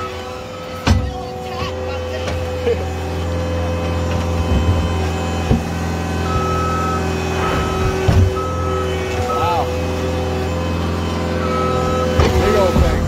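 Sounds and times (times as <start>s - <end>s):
backup alarm beeping: 0.0s - 13.0s
diesel engine under load: 0.0s - 13.0s
bucket clunks: 12.1s - 13.0s.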